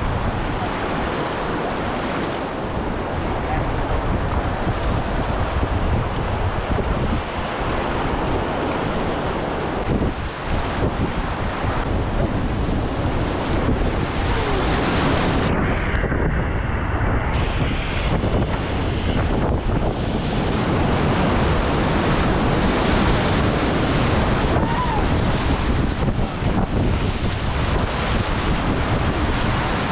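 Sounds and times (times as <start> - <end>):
wind buffeting microphone: 0.0 - 29.9
river rapids rushing: 20.3 - 28.6.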